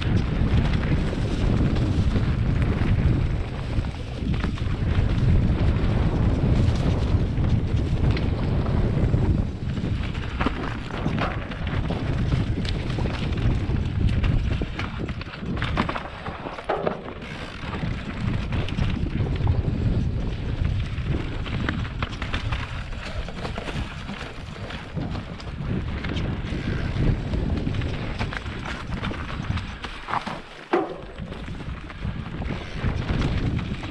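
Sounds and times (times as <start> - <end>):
bike clattering over bumps: 0.0 - 33.9
tyres rolling over leaves and stones: 0.0 - 33.9
wind rumbling on microphone: 0.0 - 33.9.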